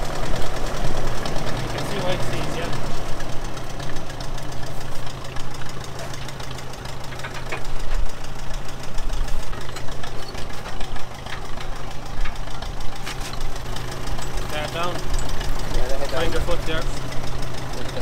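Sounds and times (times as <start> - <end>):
tractor engine idling: 0.0 - 18.0.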